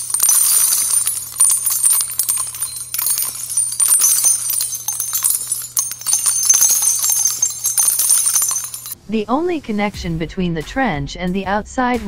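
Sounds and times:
jingling and tinkling clinks: 0.0s - 9.0s.

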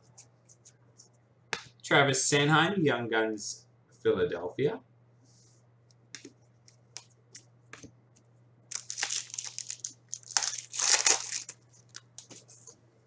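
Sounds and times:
foil wrapper crinkling and tearing: 8.7s - 12.3s.

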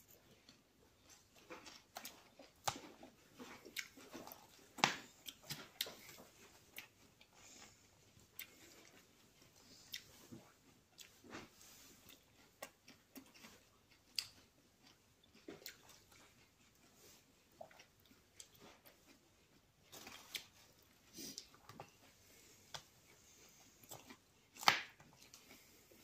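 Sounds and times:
mouth-closed chewing: 0.0s - 26.0s.

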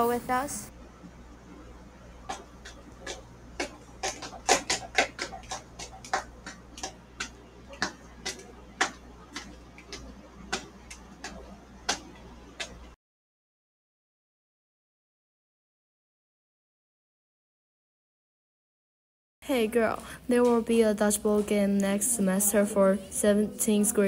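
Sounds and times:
footsteps on hard floor: 2.3s - 13.0s.

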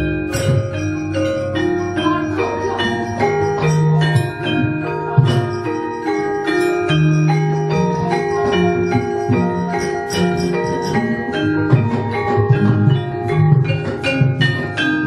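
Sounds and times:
gamelan metallophones ringing: 0.0s - 15.0s
sharp percussive accents: 0.0s - 15.0s.

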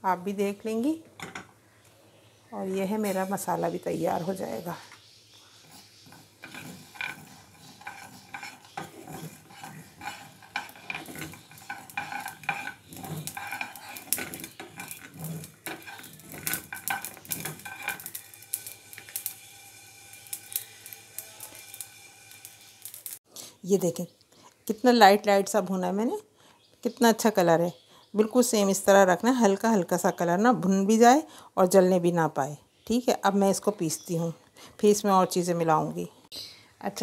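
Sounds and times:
seeds rattling in frying pan: 5.6s - 23.2s.

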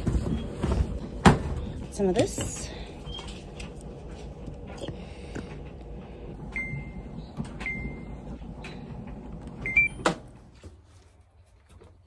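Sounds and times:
washing machine beeps: 6.3s - 10.4s.

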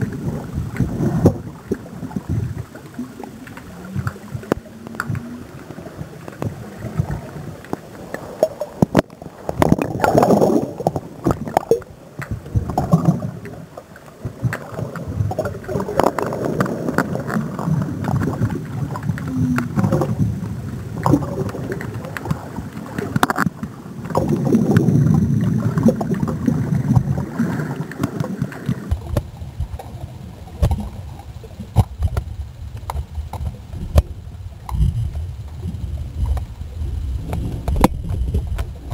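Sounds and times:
water sloshing and gurgling: 0.0s - 38.9s
sharp clicks and knocks: 28.0s - 29.9s, 30.6s - 31.0s, 31.7s - 35.2s, 37.2s - 38.9s.

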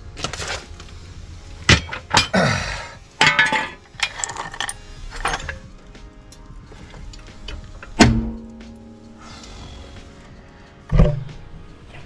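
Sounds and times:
metal clanks and clinks: 1.7s - 2.4s, 3.2s - 5.8s.

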